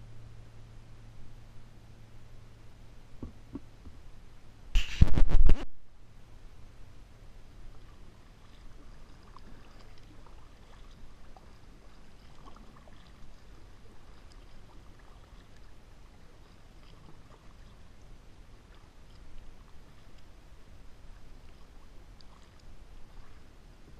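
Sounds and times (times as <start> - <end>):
low steady rumble: 0.0 - 23.9
paddle dipping in water: 7.2 - 23.9
water dripping off paddle blades: 7.4 - 20.4, 21.0 - 23.4.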